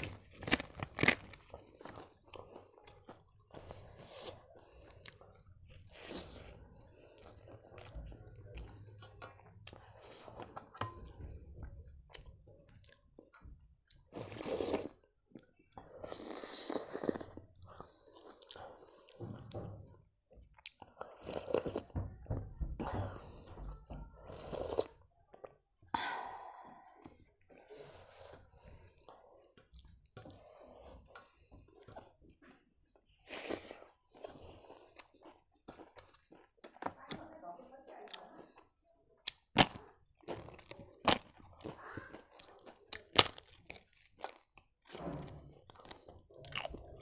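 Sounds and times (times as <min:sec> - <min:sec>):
person chewing: 0:00.0 - 0:10.9, 0:13.8 - 0:19.5, 0:20.5 - 0:22.0, 0:24.2 - 0:25.0, 0:27.0 - 0:36.9, 0:39.2 - 0:47.0
slurping soup: 0:24.2 - 0:25.0.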